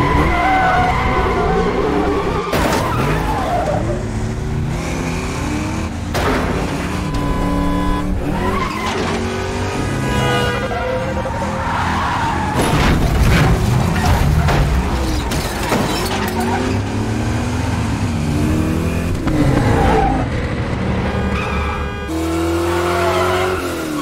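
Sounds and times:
tires squealing: 0.0 - 4.1, 6.8 - 9.4, 10.4 - 13.0, 19.3 - 22.0, 22.6 - 24.0.

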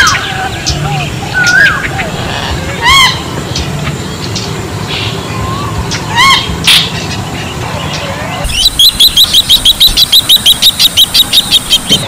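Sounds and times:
bird high piping notes: 0.0 - 12.0
bird calling short rising notes: 8.0 - 12.0.

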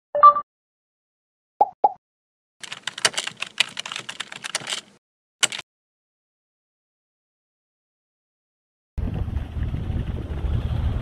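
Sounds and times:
keyboard typing: 2.6 - 5.6.

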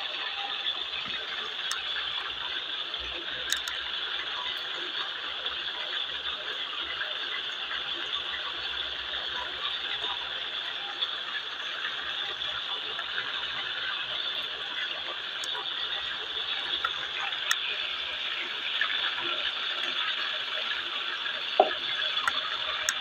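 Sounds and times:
chicken sizzling in oil: 0.0 - 23.0
oil popping: 3.3 - 4.2, 12.8 - 23.0.

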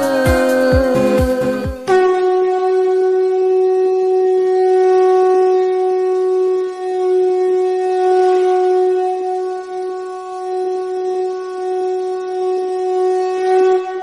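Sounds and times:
intro music with a beat: 0.0 - 2.1
sustained drone note: 0.0 - 14.0.

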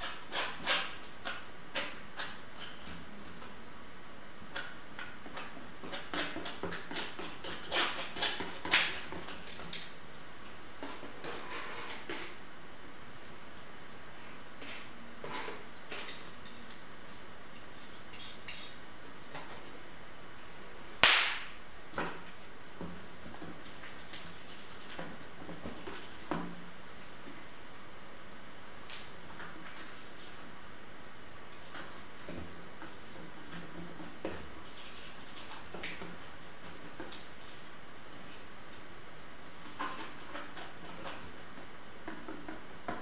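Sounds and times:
palette knife scraping canvas: 0.0 - 2.9, 5.9 - 9.5, 10.9 - 12.4
metal palette knife clinking: 17.6 - 18.8.

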